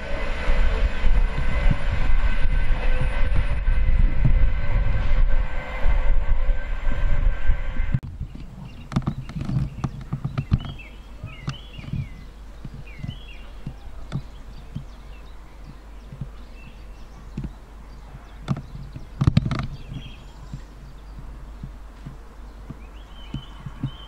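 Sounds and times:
knocks and low thumps: 7.9 - 15.0, 15.6 - 24.0
bird chirping: 8.2 - 24.0.

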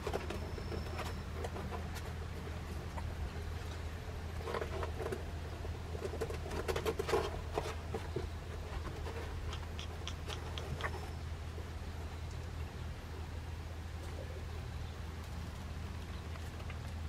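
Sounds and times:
puppy claws scratching and pattering: 5.9 - 11.2.

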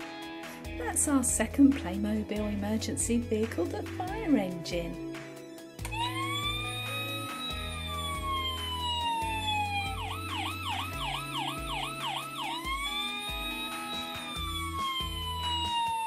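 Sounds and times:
electronic toy siren: 5.9 - 16.0.

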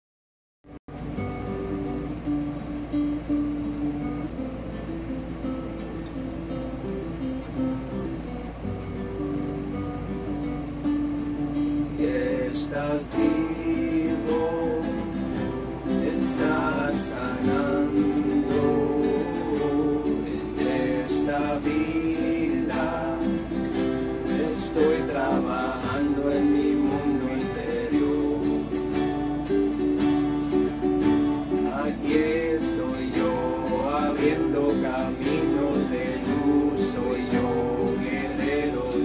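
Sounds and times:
acoustic guitars strummed: 0.9 - 39.0
man singing: 11.9 - 29.1, 31.5 - 39.0.

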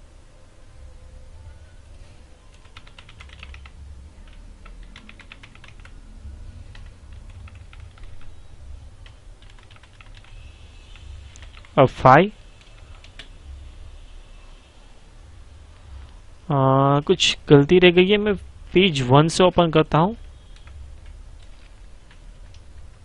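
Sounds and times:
low steady hum: 0.0 - 23.0
typing on keyboard: 2.5 - 6.0, 6.7 - 8.3, 9.0 - 11.8, 12.6 - 13.3, 20.5 - 22.7.

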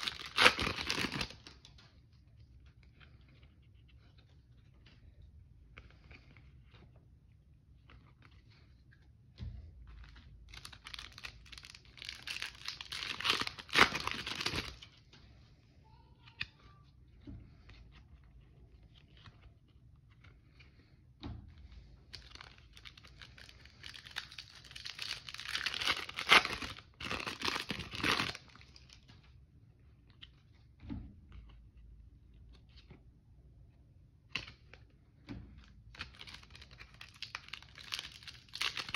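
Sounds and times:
foil wrappers tearing and crinkling: 0.0 - 1.5, 10.5 - 14.8, 22.2 - 28.9, 35.9 - 38.9.

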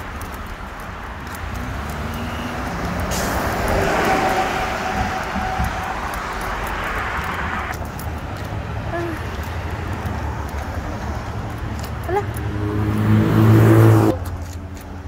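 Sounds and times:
traffic engine rumble: 0.0 - 15.0
tyre hiss: 3.1 - 4.1.

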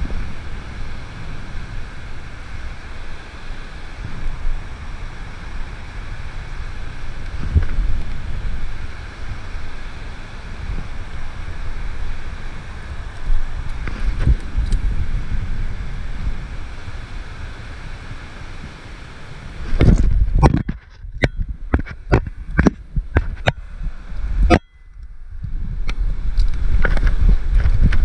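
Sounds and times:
wind rushing over microphone: 0.0 - 28.0
camera being bumped and handled: 19.8 - 23.6.

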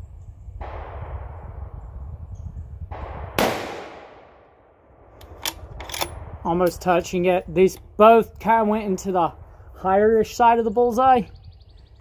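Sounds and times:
low steady rumble: 0.1 - 10.3
rifle shot with echo: 0.6 - 2.1, 2.8 - 6.8.

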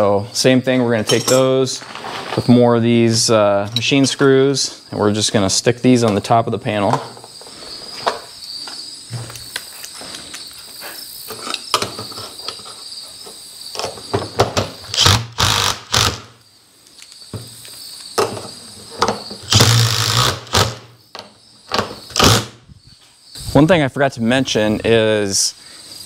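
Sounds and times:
crickets chirping: 0.0 - 26.0
impact driver driving screws: 14.9 - 16.3, 19.5 - 20.8, 22.1 - 22.5.

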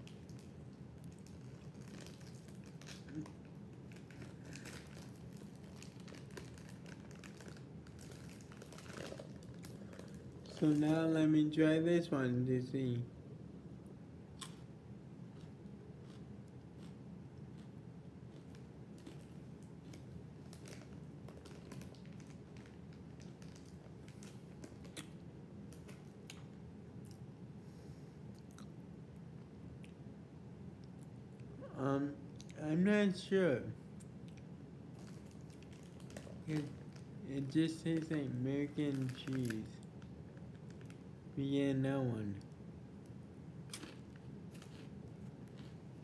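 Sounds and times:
plastic snack bag crinkling: 0.0 - 11.2, 18.3 - 26.2, 34.9 - 41.1, 43.7 - 45.8.

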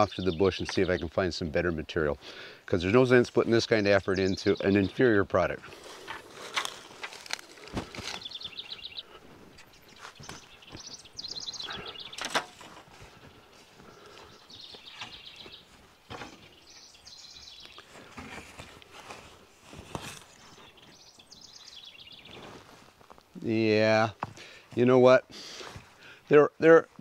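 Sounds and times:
songbird trilling: 8.2 - 12.4, 13.9 - 15.8, 16.4 - 17.8, 20.4 - 22.4.

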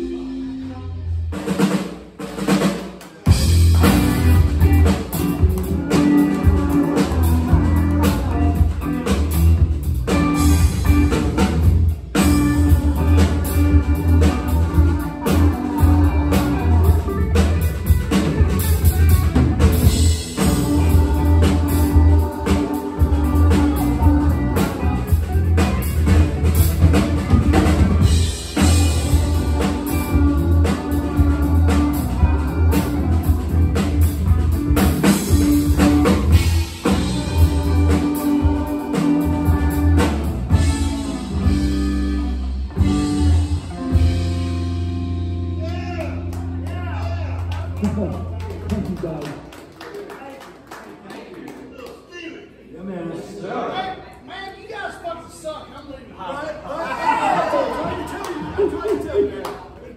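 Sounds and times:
electric bass: 0.0 - 1.7, 3.2 - 49.1
drum kit: 0.0 - 49.2
electric guitar: 3.3 - 49.0.

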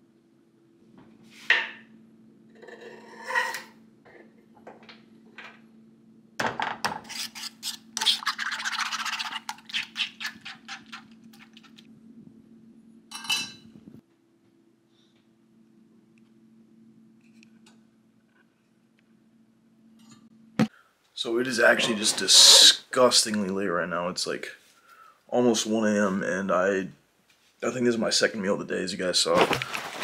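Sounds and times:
low steady hum: 0.0 - 30.0
knife scraping cutting board: 6.9 - 11.8
fork beating eggs in pan: 7.0 - 11.9.

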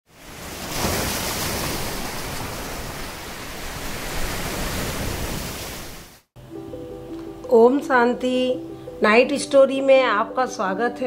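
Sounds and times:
sea waves breaking on shore: 0.1 - 6.3.

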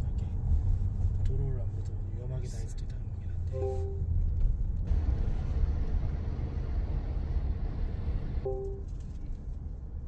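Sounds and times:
car road rumble: 0.0 - 10.0
brief pitched beep: 3.6 - 4.0, 8.4 - 8.9.

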